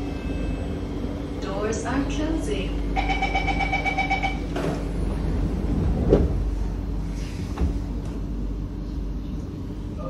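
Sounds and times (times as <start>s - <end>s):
low hum of standing train: 0.0s - 10.0s
train doors shutting with thump: 3.6s - 6.6s, 7.2s - 8.3s.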